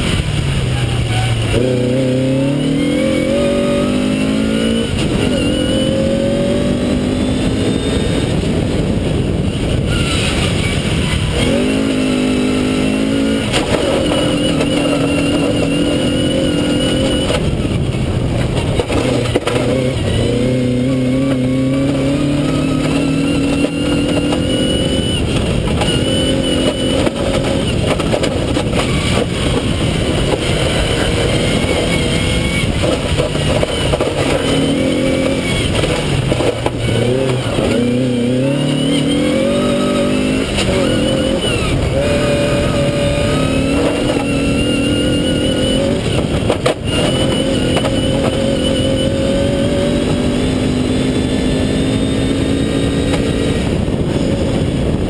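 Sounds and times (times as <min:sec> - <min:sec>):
rally car engine revving: 0:00.0 - 0:55.0
tyres on loose gravel: 0:22.1 - 0:51.2.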